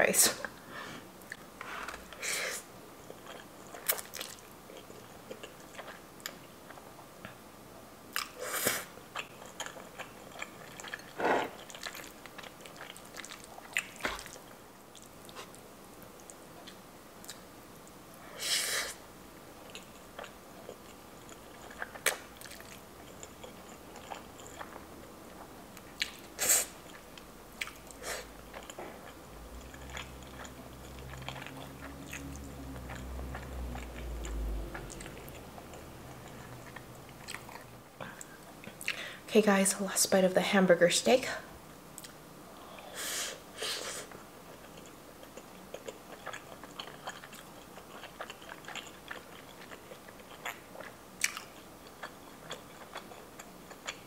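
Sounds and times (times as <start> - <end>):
soft chewing: 3.0 - 7.4, 8.1 - 18.4, 19.6 - 39.1, 42.0 - 43.0, 43.7 - 54.0
noodle slurps: 11.0 - 11.8.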